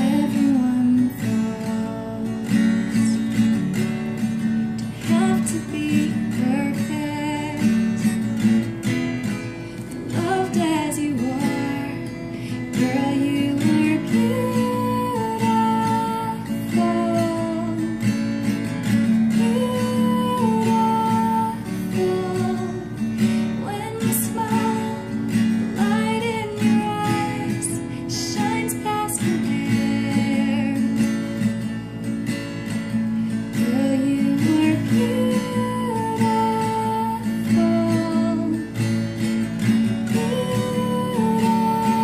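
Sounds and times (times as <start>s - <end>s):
person singing: 0.0s - 3.3s, 10.0s - 18.0s, 19.4s - 23.0s, 25.7s - 31.2s, 33.6s - 38.8s, 40.0s - 42.0s
strummed acoustic guitar: 0.0s - 42.0s.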